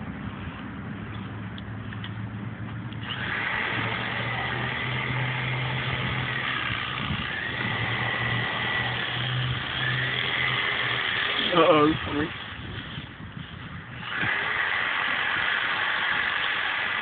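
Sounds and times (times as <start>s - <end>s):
engine running with whine: 0.0s - 13.1s.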